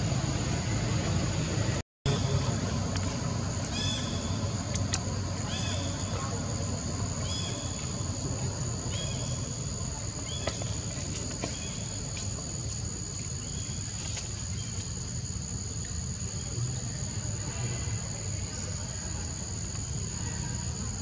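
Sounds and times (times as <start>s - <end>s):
high-pitched insect chorus: 2.1s - 21.0s
faint clicks: 4.6s - 5.1s.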